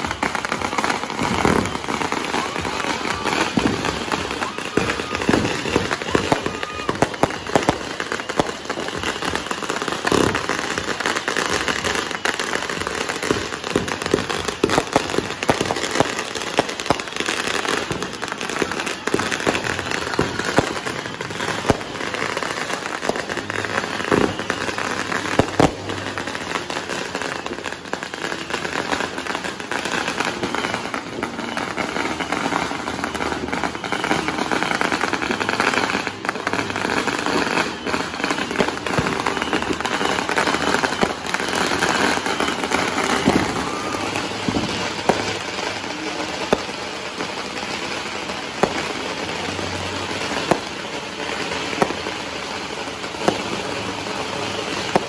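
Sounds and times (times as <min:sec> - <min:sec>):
fireworks bangs: 0:00.0 - 0:55.0
fireworks crackling and popping: 0:00.0 - 0:55.0.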